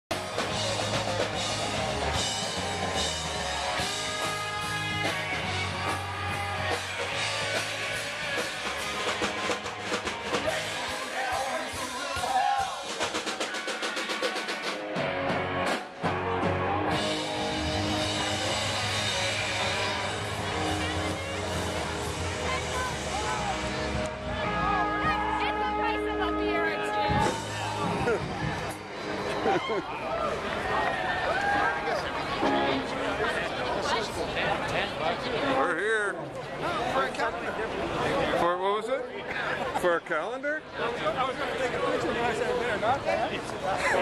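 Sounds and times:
quick drum beats: 0.1s - 16.2s
live rock band playing: 0.1s - 29.8s, 32.1s - 33.9s.

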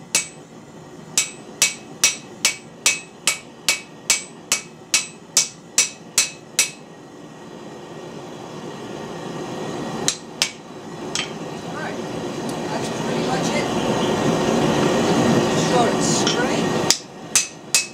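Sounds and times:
hammer ringing on anvil: 0.1s - 0.4s, 1.2s - 6.8s, 16.9s - 17.9s.

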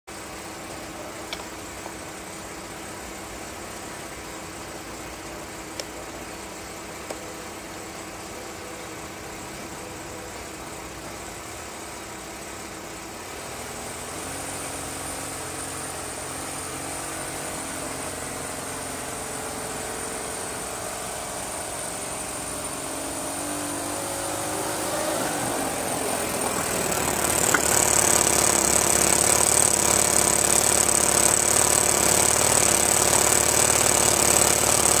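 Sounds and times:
high whine: 14.6s - 35.0s
model railway trolley humming: 24.8s - 35.0s.

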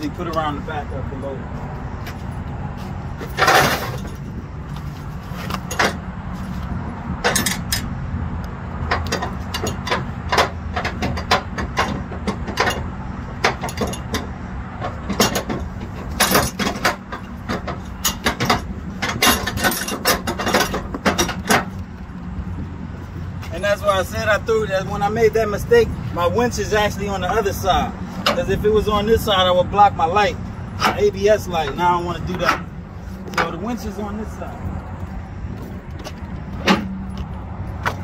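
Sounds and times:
truck engine humming: 0.0s - 38.0s
strap hardware clinking and rattling: 3.2s - 4.4s, 5.4s - 6.1s, 7.2s - 7.9s, 8.8s - 22.7s.

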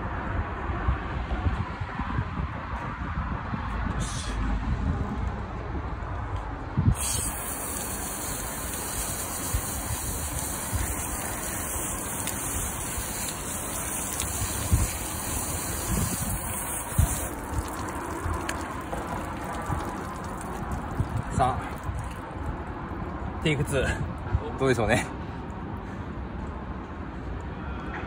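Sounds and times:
hose water spraying on glass: 6.9s - 22.4s.

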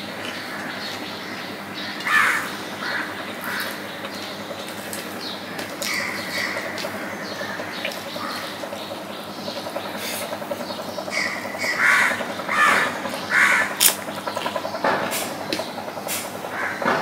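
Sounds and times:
crows cawing: 0.2s - 3.9s, 5.5s - 8.8s, 11.0s - 14.0s, 16.5s - 17.0s.

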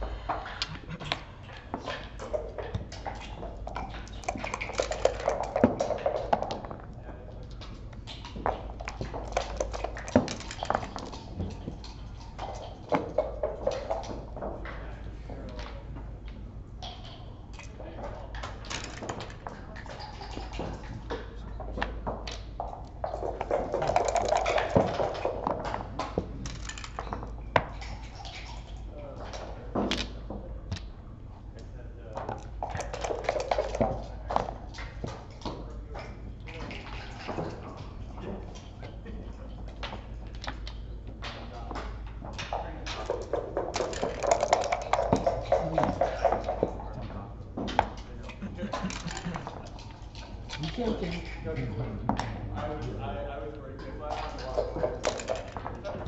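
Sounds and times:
dice rattling in cup: 4.2s - 6.2s, 23.6s - 25.1s, 43.8s - 46.0s.

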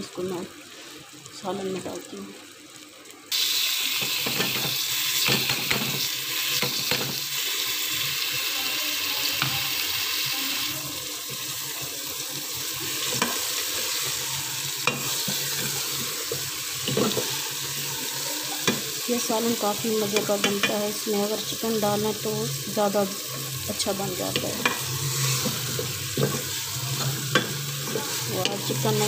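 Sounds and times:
beans sizzling in a pot: 0.0s - 29.0s
metal spoon scraping a pot: 24.3s - 29.0s.

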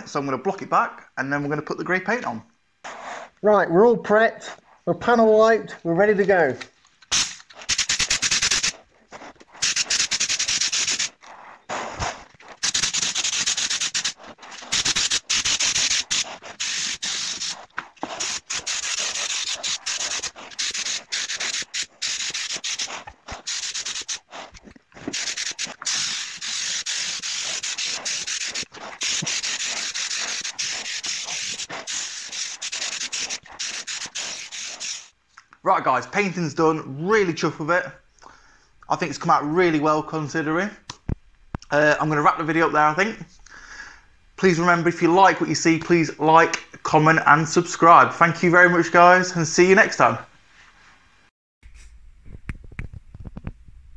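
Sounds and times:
spray gun hissing: 7.1s - 8.8s, 9.6s - 35.1s.

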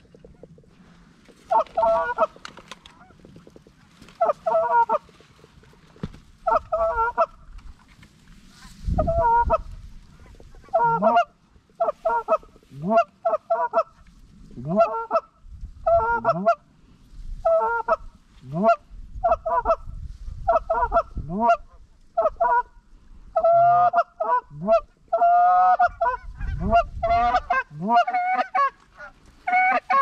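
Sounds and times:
geese honking: 0.0s - 7.5s, 8.5s - 14.0s, 14.6s - 15.3s, 23.4s - 30.0s.

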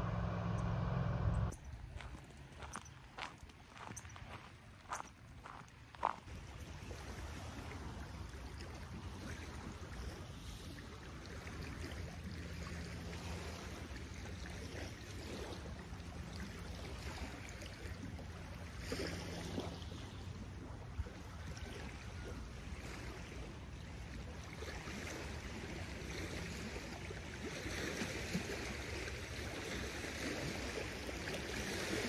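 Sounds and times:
faint low hum: 0.0s - 2.2s
lake waves lapping on shore: 1.8s - 32.0s.

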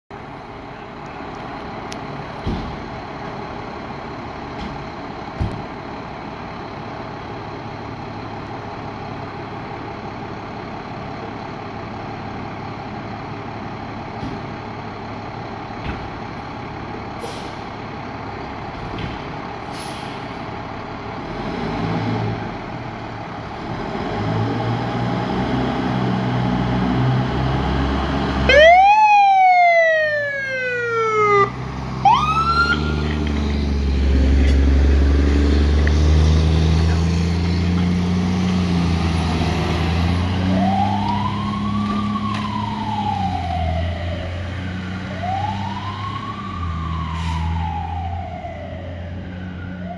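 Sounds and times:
diesel engines idling: 0.1s - 49.9s
air brakes hissing: 17.2s - 17.8s, 19.6s - 20.5s, 47.1s - 47.6s
fire truck siren: 24.2s - 49.9s.

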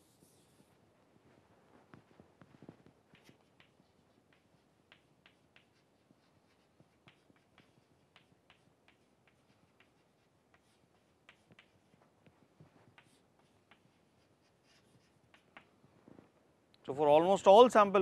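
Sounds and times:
chalk tapping on blackboard: 3.1s - 15.8s.

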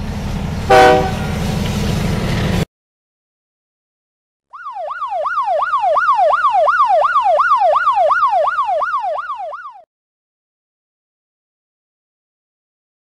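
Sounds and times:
police siren yelp: 4.5s - 9.9s.

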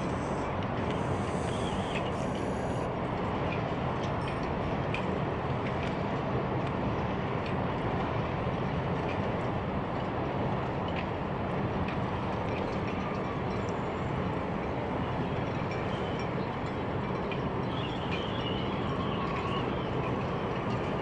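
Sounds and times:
even hiss: 0.0s - 2.9s.

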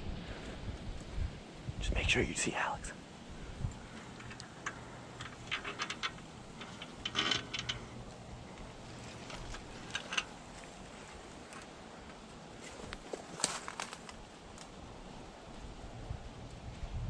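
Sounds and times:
metal stand clicking and rattling: 4.0s - 10.7s
dry leaves rustling: 8.6s - 14.9s.

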